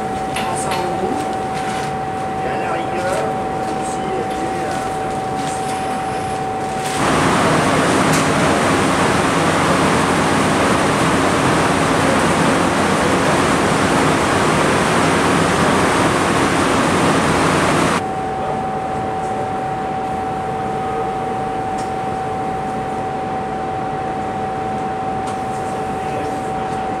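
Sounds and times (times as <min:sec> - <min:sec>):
ventilation fans hissing: 0:00.0 - 0:18.6
equipment humming with steady tones: 0:00.0 - 0:27.0.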